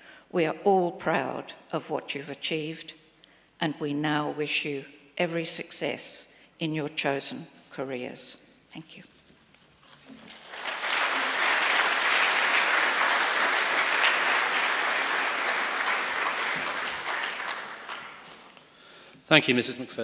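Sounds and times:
audience applauding: 10.1s - 18.7s.

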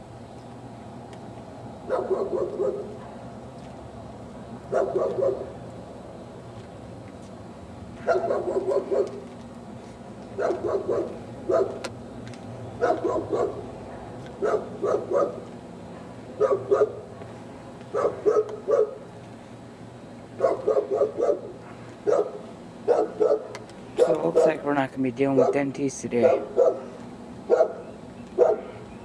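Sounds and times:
dog barking: 1.9s - 3.0s, 4.7s - 5.5s, 8.0s - 9.2s, 10.4s - 11.8s, 12.8s - 15.4s, 16.4s - 17.0s, 17.9s - 19.0s, 20.4s - 24.6s, 25.4s - 26.9s, 27.5s - 27.8s, 28.4s - 28.7s.

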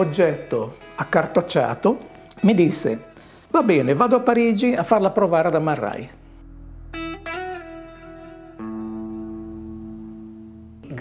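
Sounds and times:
slow plucked guitar notes: 6.2s - 11.0s.

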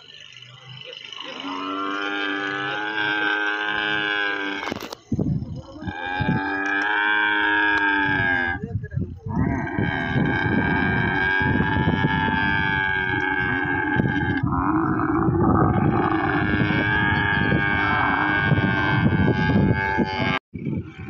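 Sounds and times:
camel calling: 0.0s - 21.0s.

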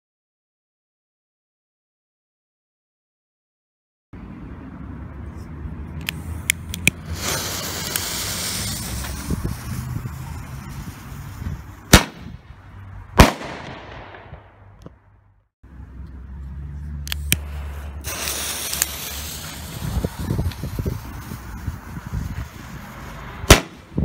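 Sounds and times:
fuse hissing: 6.1s - 11.6s, 17.4s - 23.5s
firework bangs: 7.1s - 12.4s, 13.2s - 14.7s, 17.4s - 24.0s
small firework cracks: 11.9s - 12.3s, 13.2s - 14.6s, 17.4s - 21.4s, 23.5s - 23.9s.

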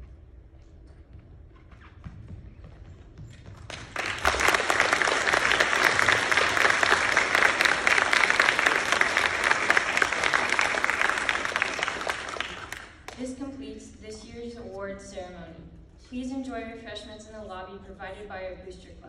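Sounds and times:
audience applauding: 3.6s - 13.2s.

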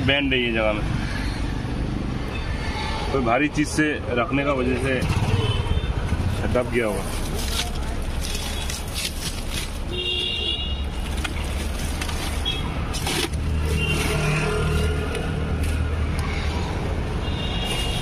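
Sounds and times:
traffic engine rumble: 0.0s - 18.0s
plastic wrap crinkling: 6.4s - 15.8s.

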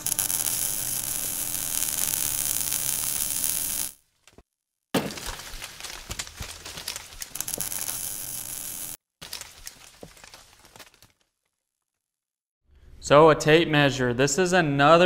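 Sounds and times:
steady hiss: 0.0s - 3.9s
short clicks and crackles: 0.0s - 4.0s, 6.9s - 11.2s.

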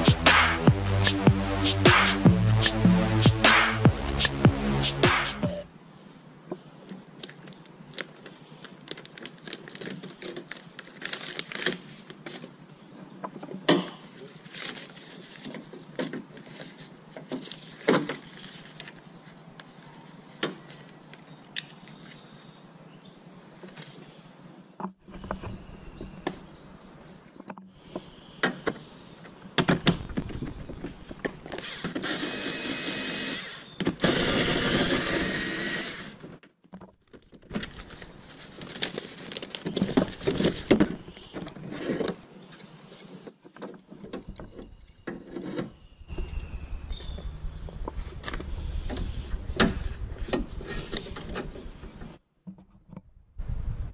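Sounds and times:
power tool running: 31.6s - 36.2s.

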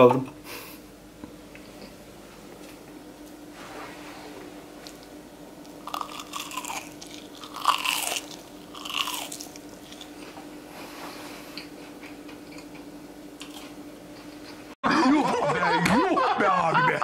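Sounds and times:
chewing: 5.8s - 10.4s
crunching bites into fried chip: 5.9s - 10.1s.

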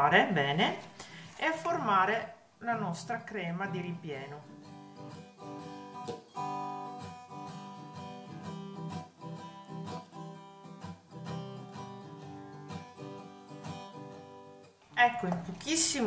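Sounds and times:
acoustic guitar strumming: 4.5s - 16.0s.

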